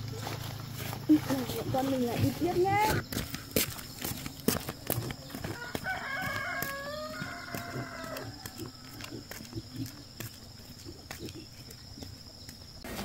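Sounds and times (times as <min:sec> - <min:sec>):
rooster crowing: 0:05.3 - 0:09.1.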